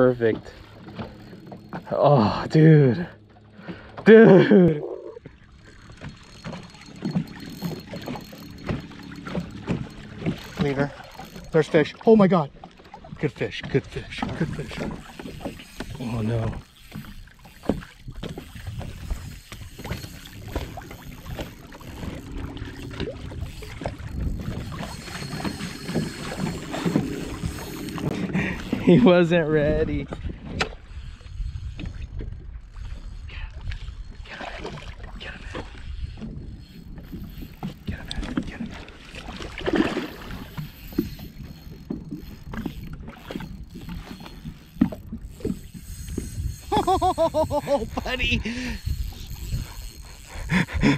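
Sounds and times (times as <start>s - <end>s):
water against boat hull: 0.0s - 50.9s
wind on microphone: 17.9s - 29.0s, 29.6s - 50.9s
water slapping against boat hull: 37.9s - 41.0s.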